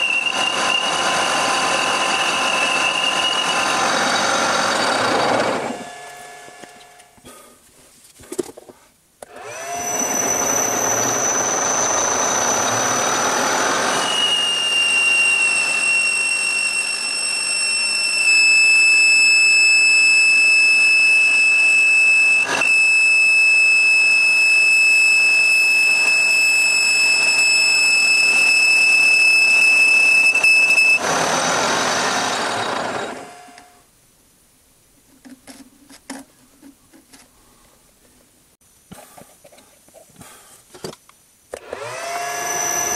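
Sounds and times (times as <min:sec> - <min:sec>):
metal lathe running: 0:00.0 - 0:07.1, 0:09.4 - 0:18.4, 0:25.3 - 0:33.7
high cutting whine: 0:00.0 - 0:07.2, 0:09.4 - 0:33.8.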